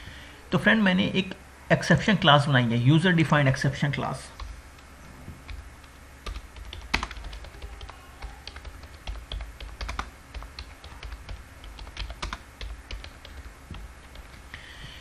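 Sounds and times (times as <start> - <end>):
low steady hum: 0.0 - 15.0
keyboard typing: 4.4 - 14.6.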